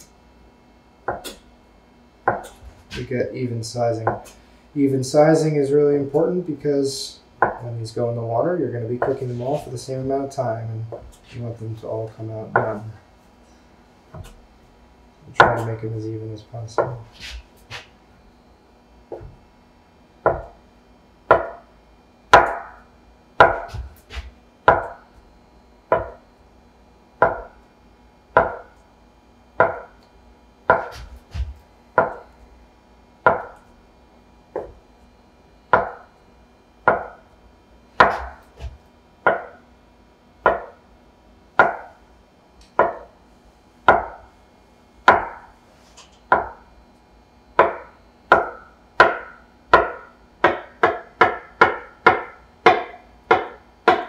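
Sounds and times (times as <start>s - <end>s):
knife blade knocking on wood: 2.3s - 2.6s, 20.3s - 20.6s, 21.3s - 21.6s, 23.4s - 25.0s, 25.9s - 26.2s, 27.2s - 27.6s, 28.4s - 28.7s, 29.6s - 30.0s, 30.7s - 32.2s, 33.3s - 33.6s, 35.7s - 36.1s, 36.9s - 37.2s, 38.0s - 39.6s, 40.5s - 40.8s, 42.8s - 43.1s, 46.3s - 46.6s, 47.6s - 54.0s
knife cutting dough: 30.7s - 32.2s, 38.0s - 39.6s.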